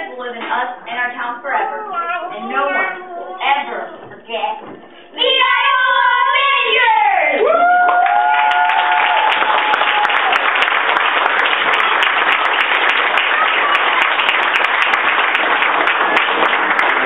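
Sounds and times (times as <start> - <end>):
audience applauding: 7.4 - 17.0.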